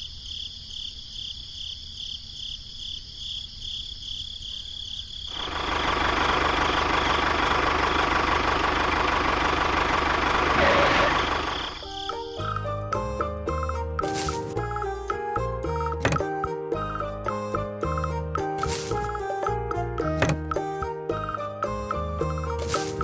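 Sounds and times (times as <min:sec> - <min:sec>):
crickets chirping: 0:00.0 - 0:06.0, 0:11.1 - 0:12.6
tractor engine running: 0:05.3 - 0:12.6, 0:22.2 - 0:23.0.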